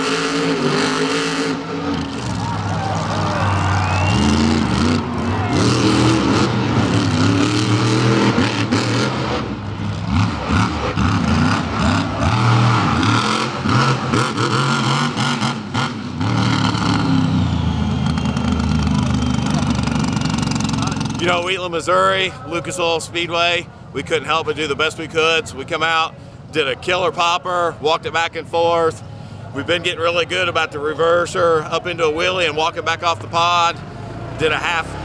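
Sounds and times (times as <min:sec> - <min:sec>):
monster truck engine revving: 0:00.0 - 0:21.9, 0:33.0 - 0:35.0.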